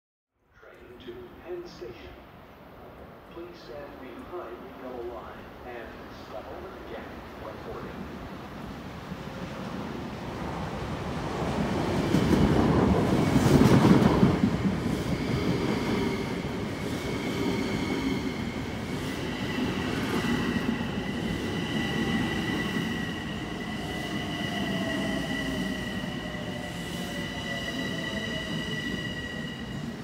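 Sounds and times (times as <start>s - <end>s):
train wheels rumbling on rail: 9.3s - 30.0s
high squeal: 19.2s - 30.0s.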